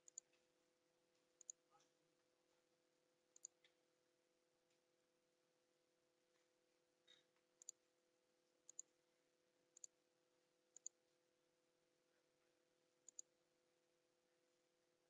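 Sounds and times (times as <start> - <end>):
computer mouse clicking: 0.0 - 0.4, 1.4 - 1.6, 3.4 - 3.8, 7.6 - 7.8, 8.7 - 8.9, 9.8 - 10.0, 10.8 - 11.0, 13.1 - 13.3.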